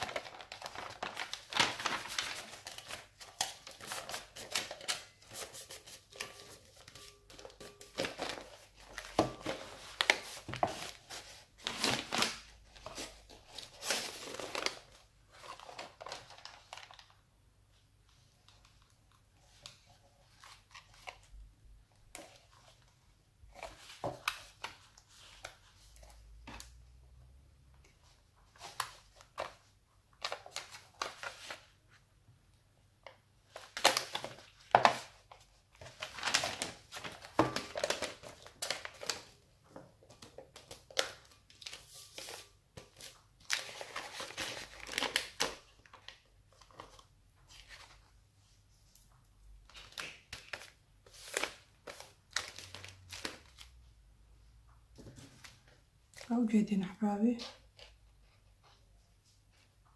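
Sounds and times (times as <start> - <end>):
paper rustling: 0.0 - 17.2, 33.5 - 39.3
plastic wrap crinkling: 0.0 - 17.2, 33.5 - 39.4, 40.1 - 48.1.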